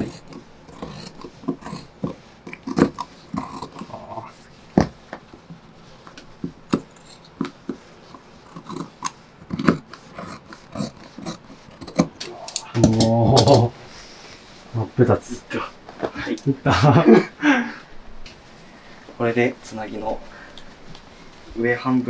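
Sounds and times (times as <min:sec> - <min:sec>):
fabric rustling: 0:18.3 - 0:22.0.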